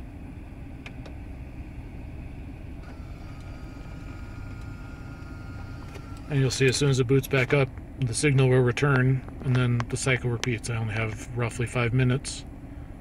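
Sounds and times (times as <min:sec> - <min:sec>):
truck engine idling: 0:00.0 - 0:13.0
faint thin motor whine: 0:00.7 - 0:07.7.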